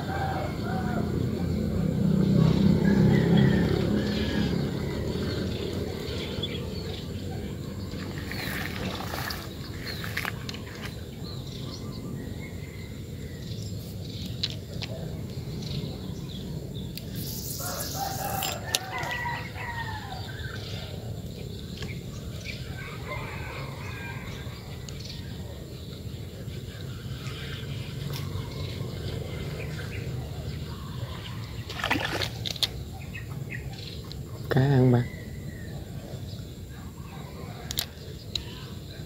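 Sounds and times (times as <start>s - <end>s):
low outdoor noise: 0.0s - 39.0s.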